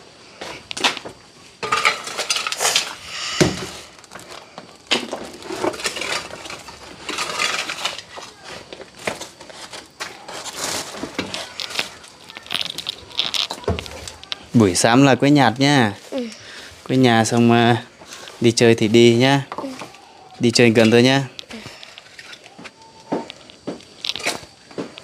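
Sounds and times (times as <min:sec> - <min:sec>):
hard objects clattering: 0:00.5 - 0:25.0
heavy thud: 0:03.3 - 0:03.8.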